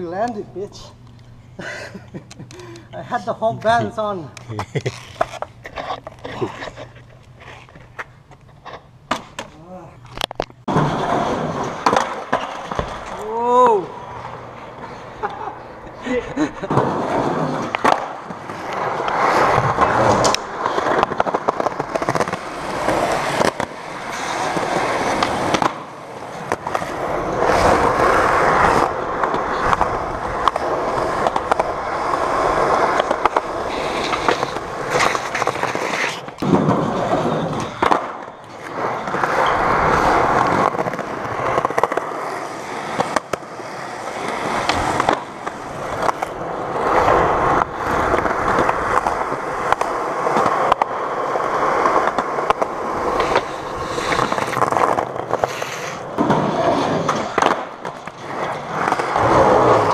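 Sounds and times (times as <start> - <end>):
skateboard wheels rolling on concrete: 0.0 - 59.9
skateboard clacks: 16.6 - 59.9.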